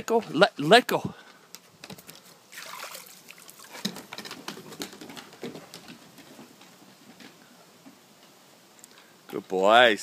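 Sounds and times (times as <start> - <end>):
dog claws tapping on wooden deck: 3.8 - 7.4.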